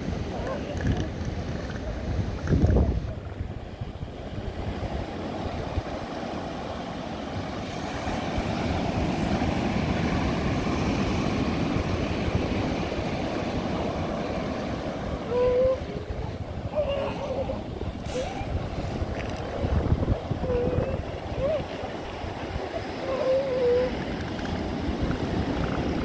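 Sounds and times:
surf: 0:00.0 - 0:26.0
wind on microphone: 0:00.0 - 0:26.0
elephant seals grunting and belching: 0:15.2 - 0:19.6, 0:22.7 - 0:26.0
short rising seal call: 0:16.7 - 0:18.6.

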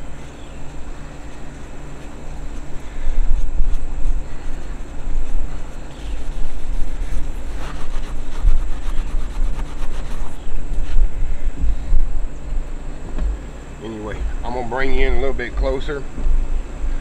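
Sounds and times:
wind rumble on microphone: 0:00.0 - 0:17.0
scouring pad scrubbing paint: 0:03.7 - 0:10.4.

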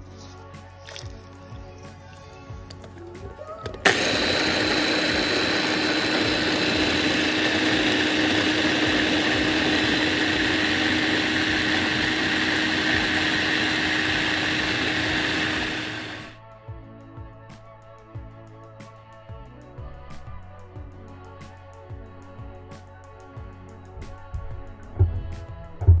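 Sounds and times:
electric food chopper whirring: 0:03.7 - 0:16.4.

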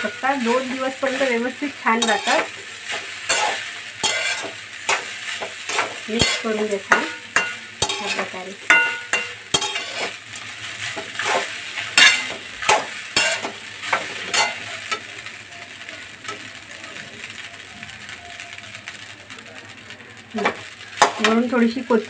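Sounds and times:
metal spatula scraping rice in pan: 0:00.0 - 0:15.1
light steady sizzle: 0:00.0 - 0:22.0.

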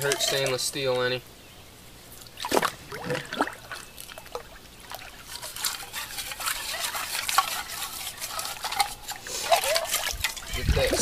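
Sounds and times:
gritty scrapes on metal container: 0:00.0 - 0:00.9, 0:05.1 - 0:11.0
small water splashes: 0:02.2 - 0:08.8
river water sloshing and trickling: 0:02.2 - 0:11.0.

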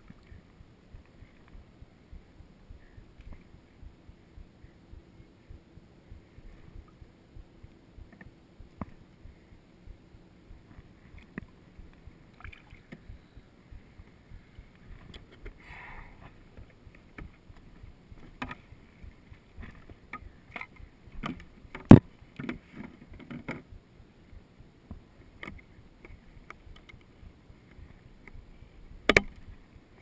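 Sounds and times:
water sloshing and lapping: 0:12.3 - 0:13.0.

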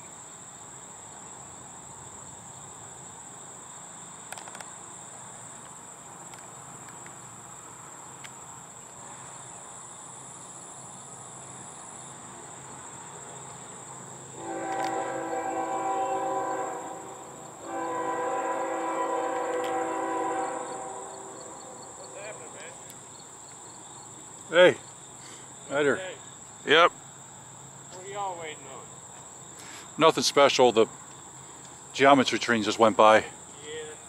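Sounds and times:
insects chirring: 0:00.0 - 0:34.0
locomotive air horn blasts: 0:14.4 - 0:22.6.

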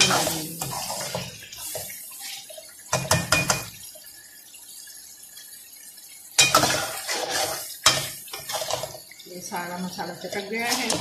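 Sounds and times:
metal spoon scraping a pan: 0:00.0 - 0:02.4, 0:06.4 - 0:09.1, 0:10.3 - 0:11.0
spoon clinking against pan: 0:02.9 - 0:03.7.

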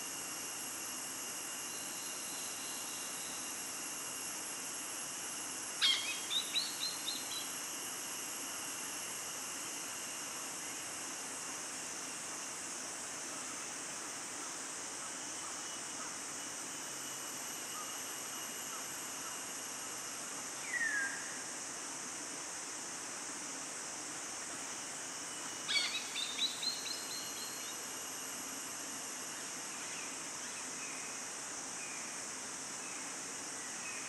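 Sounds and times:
insects hissing: 0:00.0 - 0:34.0.

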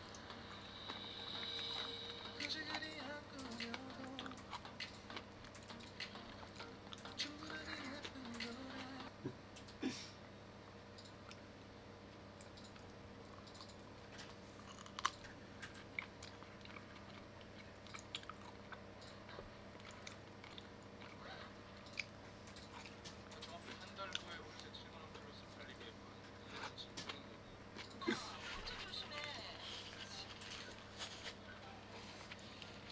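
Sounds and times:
chewing food: 0:00.0 - 0:09.7, 0:12.4 - 0:24.8.

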